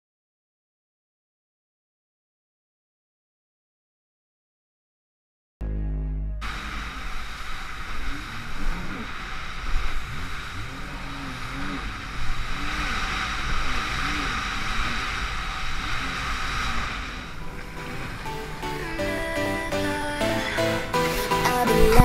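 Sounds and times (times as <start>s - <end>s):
jet ski engine revving: 6.4s - 22.0s
water spray: 6.4s - 22.0s
wind rushing: 6.4s - 22.0s.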